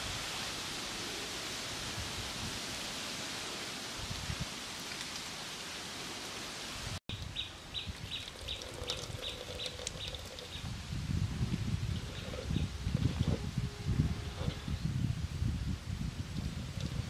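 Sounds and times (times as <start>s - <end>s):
wet squelching and dripping: 7.1s - 10.7s.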